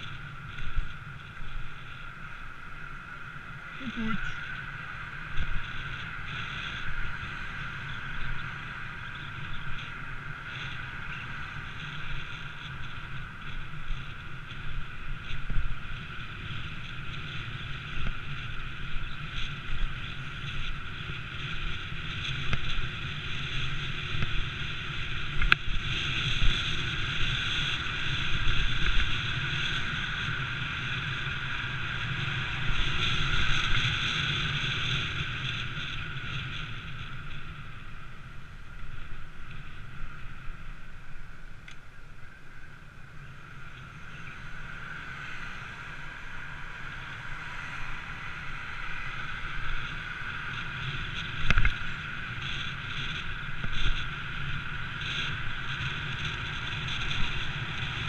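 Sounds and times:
road rumble: 0:00.0 - 0:58.0.

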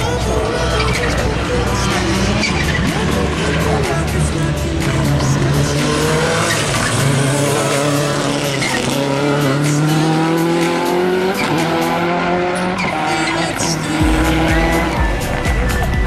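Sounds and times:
race car engine accelerating: 0:00.0 - 0:16.0.

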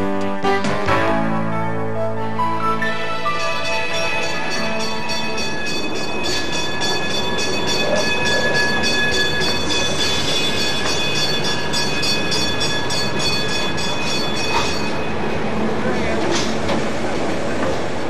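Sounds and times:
railcar high whine: 0:01.7 - 0:18.0
railcar wheels clicking: 0:03.4 - 0:18.0.

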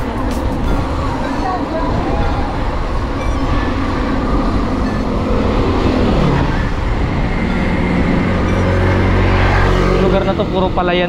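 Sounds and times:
motor vehicle passing: 0:00.0 - 0:11.0
road traffic rumble: 0:00.0 - 0:11.0.

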